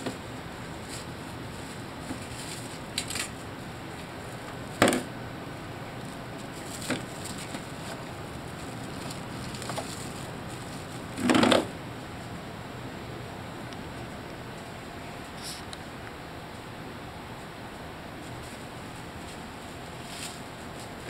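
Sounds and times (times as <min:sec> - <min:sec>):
crinkling rustle of packages: 0:00.1 - 0:04.8, 0:06.0 - 0:11.7, 0:18.2 - 0:21.0
knock on frozen packages: 0:04.8 - 0:05.1.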